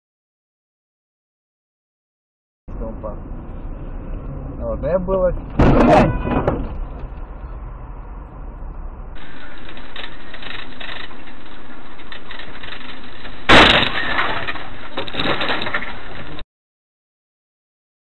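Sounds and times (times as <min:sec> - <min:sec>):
road and engine noise: 0:02.7 - 0:16.4
vehicle collision crash: 0:05.5 - 0:07.0, 0:09.2 - 0:16.4
glass breaking: 0:09.2 - 0:16.4.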